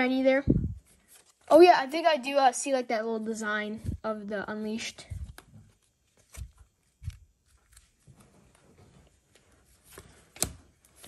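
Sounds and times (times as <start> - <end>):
dull low thumps: 0.4 - 0.8
cards sliding and clicking: 9.8 - 11.0.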